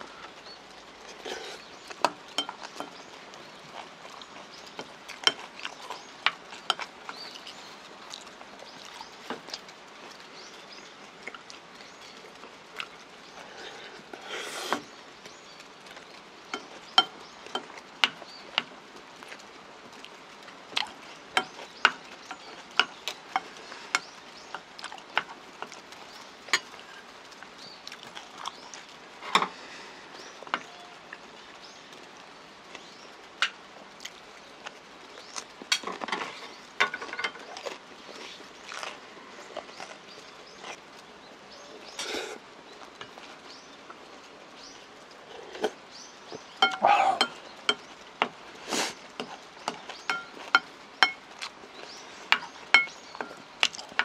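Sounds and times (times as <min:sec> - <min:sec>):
chewing and mouth sounds: 0:00.2 - 0:18.6, 0:19.2 - 0:29.0, 0:34.0 - 0:36.1, 0:37.4 - 0:41.1, 0:46.6 - 0:54.0.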